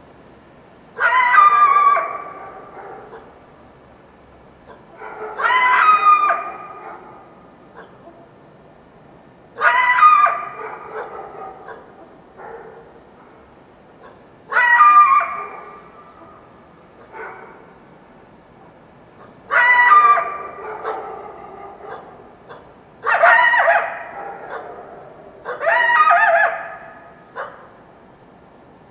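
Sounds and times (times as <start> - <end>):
coyote barking yelps: 1.0 - 3.4, 4.6 - 8.4, 9.6 - 13.3, 14.0 - 17.9, 19.2 - 27.8.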